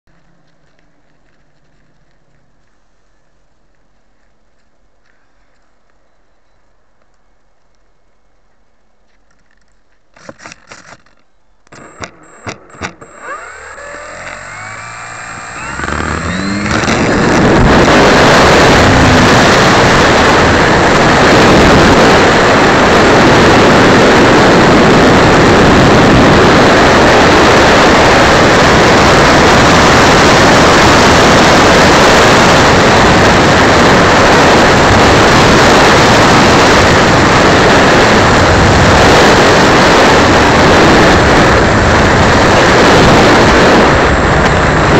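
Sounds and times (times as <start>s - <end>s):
clicks: 9.1s - 18.0s
propeller and wind rush: 9.4s - 44.9s
electric motor whine: 11.7s - 21.2s.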